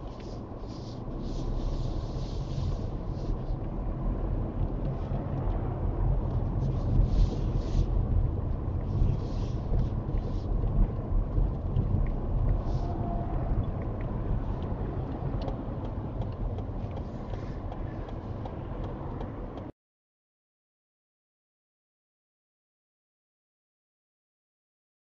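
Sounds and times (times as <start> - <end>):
car engine and tyres rumbling: 0.0 - 19.8
light ticks: 13.5 - 19.7.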